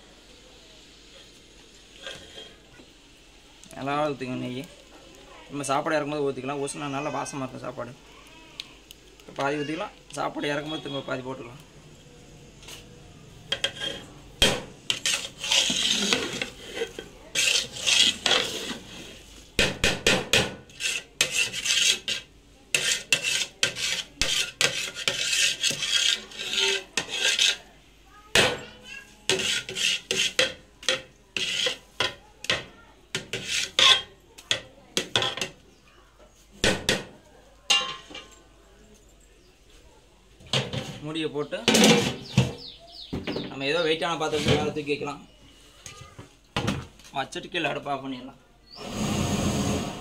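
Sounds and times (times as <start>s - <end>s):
ladle scraping metal pot: 2.0s - 2.7s, 13.5s - 27.7s, 29.0s - 35.6s, 41.7s - 42.7s, 48.7s - 50.0s.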